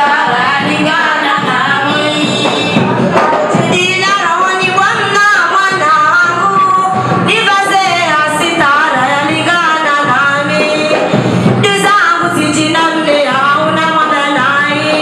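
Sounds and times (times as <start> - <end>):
musical accompaniment: 0.0 - 15.0
women singing: 0.0 - 15.0.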